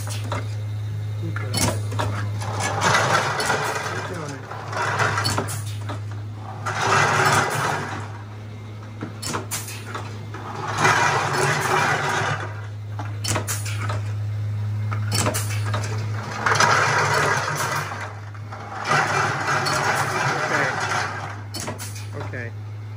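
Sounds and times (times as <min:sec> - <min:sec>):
machine motor hum: 0:00.0 - 0:22.9
rushes of mechanical noise: 0:00.0 - 0:22.9.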